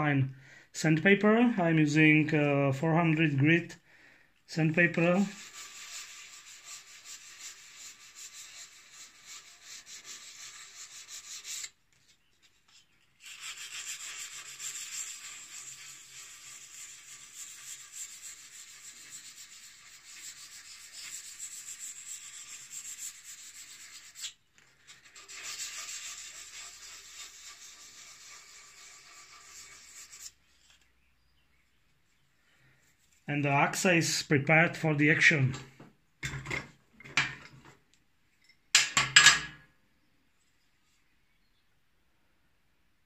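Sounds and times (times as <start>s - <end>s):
sandpaper rubbing on steel blade: 5.0s - 11.8s, 12.7s - 30.8s.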